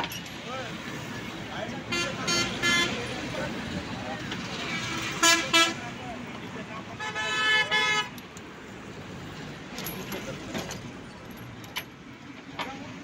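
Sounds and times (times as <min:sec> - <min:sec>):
steady background noise: 0:00.0 - 0:13.0
metal chain clinking: 0:09.7 - 0:12.0.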